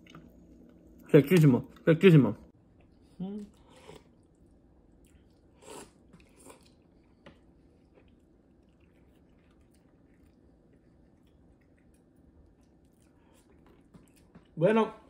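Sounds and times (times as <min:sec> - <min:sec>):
man chewing and sipping: 0:02.8 - 0:14.6.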